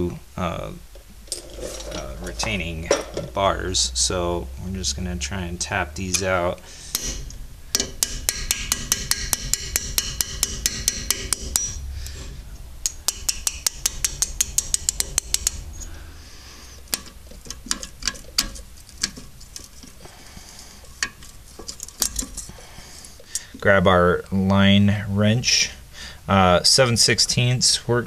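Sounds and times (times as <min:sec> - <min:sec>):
hammer tapping steel punch: 0:06.9 - 0:12.2, 0:12.8 - 0:15.9, 0:16.9 - 0:19.7
metal clinks: 0:07.8 - 0:12.2, 0:16.8 - 0:23.5.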